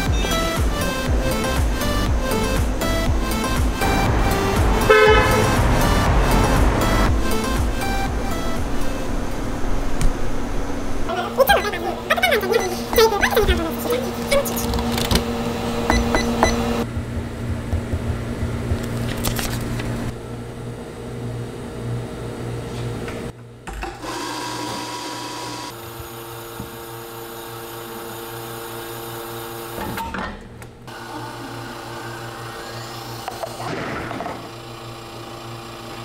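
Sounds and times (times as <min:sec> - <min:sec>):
espresso machine humming and whirring: 0:23.8 - 0:29.8, 0:30.9 - 0:33.6, 0:34.4 - 0:36.0.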